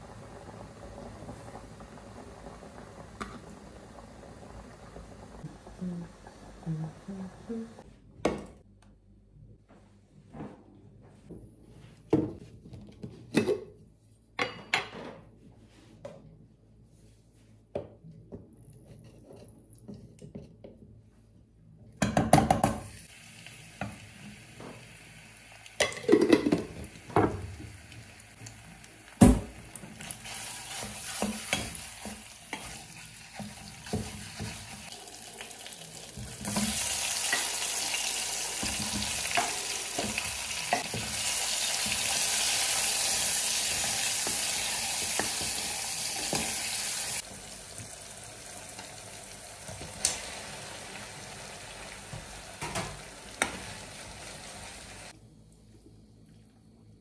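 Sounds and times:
tomatoes sizzling in pot: 0.0s - 7.8s, 22.6s - 55.2s.

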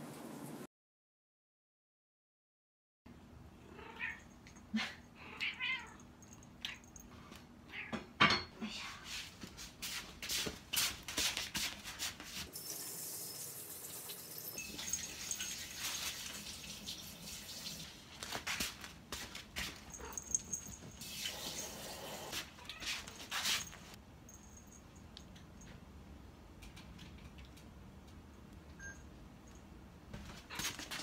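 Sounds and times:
utensils and dishes clattering: 12.5s - 17.0s
running water: 12.5s - 18.4s.

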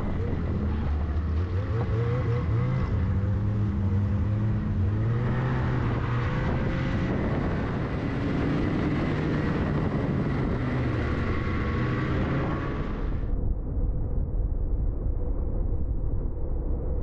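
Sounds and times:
snowmobile engine running: 0.0s - 13.2s
snowmobile track noise: 0.0s - 13.5s
wind noise: 0.0s - 17.0s.

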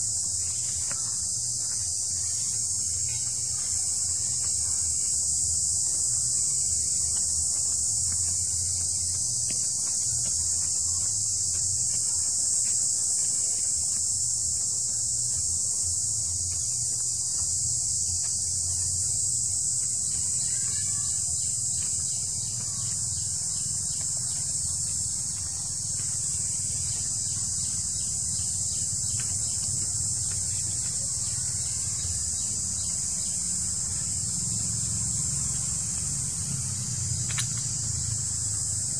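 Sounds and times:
insect chorus shrilling: 0.0s - 38.9s.

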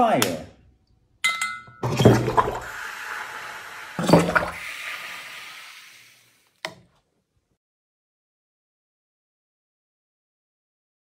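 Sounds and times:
water rushing and gurgling: 2.0s - 5.4s.

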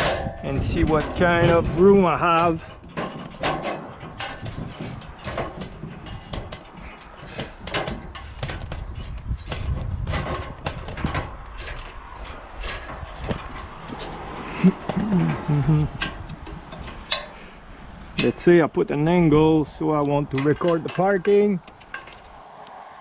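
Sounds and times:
knocks and clanks on metal ladder: 0.0s - 17.5s.

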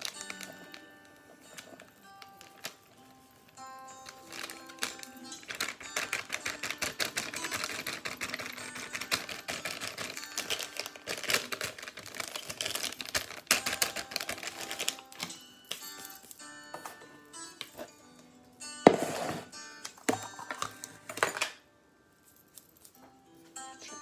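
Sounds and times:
plastic packet crinkling: 0.0s - 17.0s.

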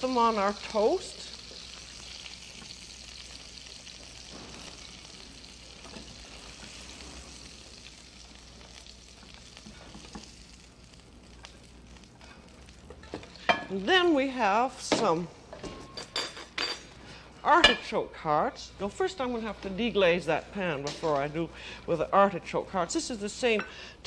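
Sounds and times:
fat sizzling in a frying pan: 0.0s - 15.2s.

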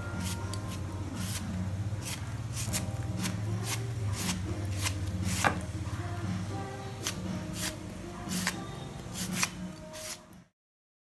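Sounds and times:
cleaver slicing banana flower: 1.2s - 5.6s, 7.0s - 8.6s, 9.2s - 10.2s.

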